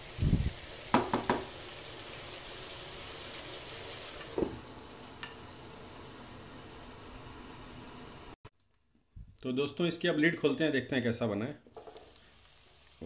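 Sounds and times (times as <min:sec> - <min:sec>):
cabbage sizzling in a pan: 0:00.0 - 0:08.4, 0:11.7 - 0:13.0
wooden spatula knocking pan: 0:00.9 - 0:01.6.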